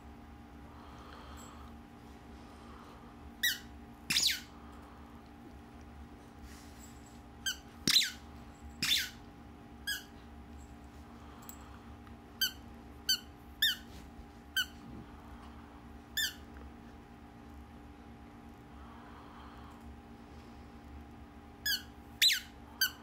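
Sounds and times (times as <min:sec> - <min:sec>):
squeaky toy squeaks: 0:03.4 - 0:04.5, 0:07.4 - 0:08.2, 0:08.8 - 0:09.2, 0:09.9 - 0:10.1, 0:12.4 - 0:13.9, 0:16.2 - 0:16.4, 0:21.6 - 0:23.0.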